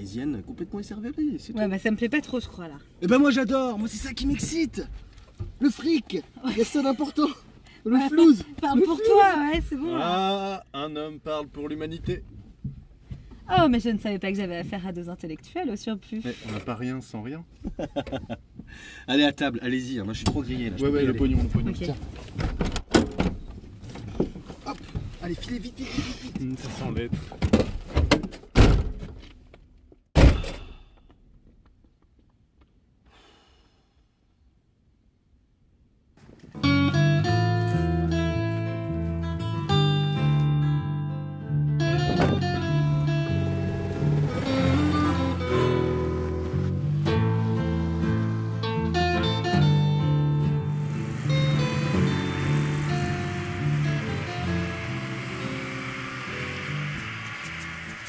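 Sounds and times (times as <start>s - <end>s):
background music held notes: 36.6s - 58.0s.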